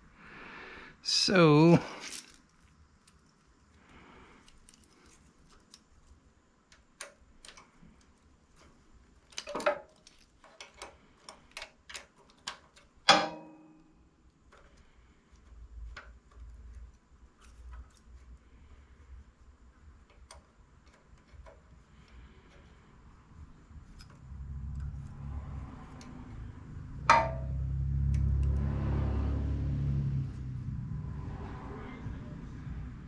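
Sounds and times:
ringing metal clanks: 13.1s - 13.9s, 27.1s - 27.6s.

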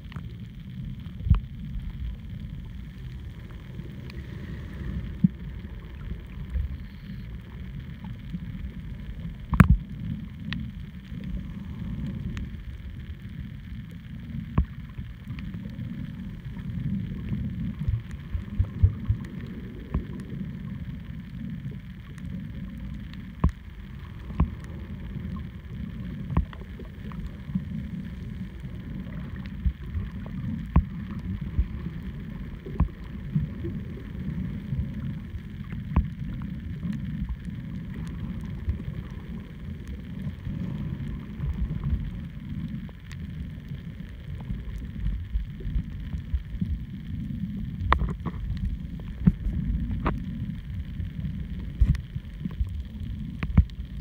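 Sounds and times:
muffled rumble of moving water: 0.0s - 54.0s
underwater clicks and pops: 9.4s - 9.9s, 47.8s - 48.6s, 51.7s - 52.7s, 53.4s - 53.8s.

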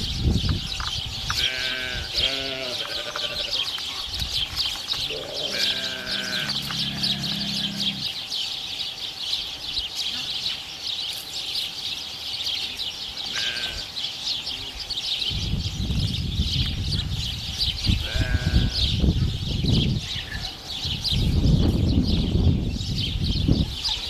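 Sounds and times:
farm animal bleating: 1.3s - 3.6s, 5.1s - 8.2s, 13.3s - 13.9s, 18.0s - 18.9s
high chirping: 2.3s - 12.8s
low rumble on microphone: 4.2s - 8.2s, 15.2s - 23.9s.

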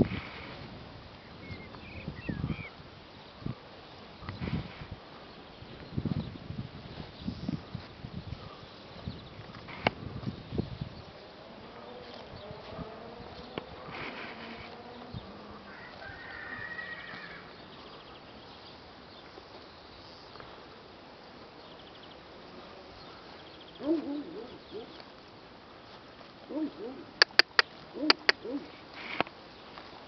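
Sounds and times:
sharp clicks: 27.2s - 28.5s.

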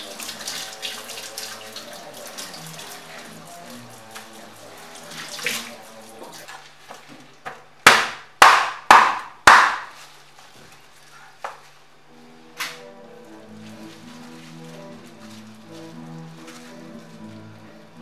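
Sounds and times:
tap water running into a sink: 0.0s - 6.7s
cleaver chopping fish on a board: 7.5s - 9.9s.

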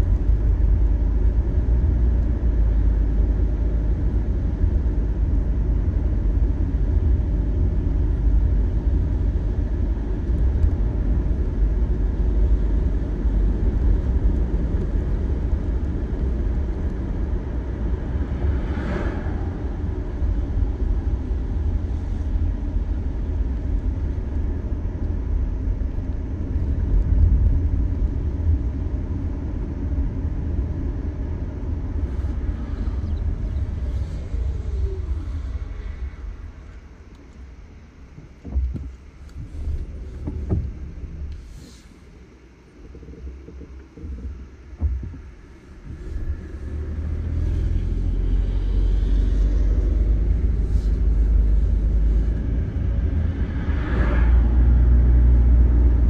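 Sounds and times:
car road and engine noise: 0.0s - 56.0s.

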